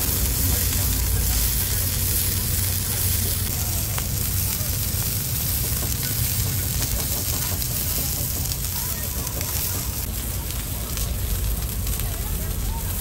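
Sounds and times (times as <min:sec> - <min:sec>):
low rumble: 0:00.0 - 0:13.0
pork sizzling on grill: 0:00.0 - 0:13.0.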